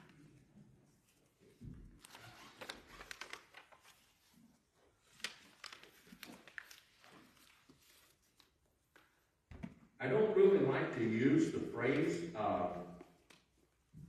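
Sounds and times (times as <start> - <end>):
thin pages turning: 2.0 - 9.1.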